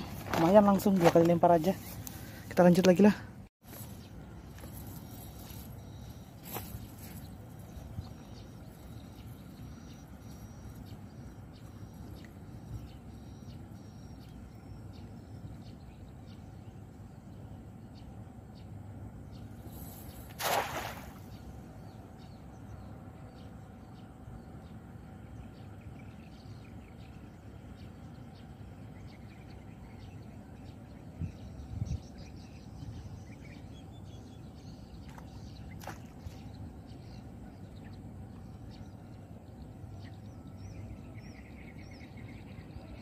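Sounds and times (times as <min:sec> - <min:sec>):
faint bird chirps: 0:03.7 - 0:18.7
net splashing into water: 0:20.2 - 0:21.3.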